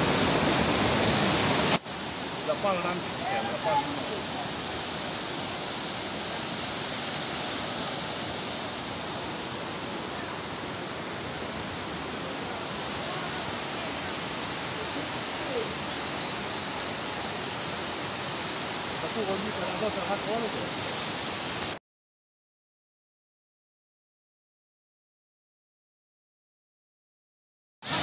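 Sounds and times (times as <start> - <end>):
floodwater rushing: 0.0 - 21.8.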